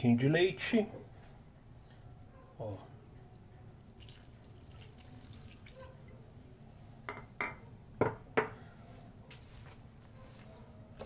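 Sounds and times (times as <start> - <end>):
milk pouring into metal bowl: 3.8 - 6.2.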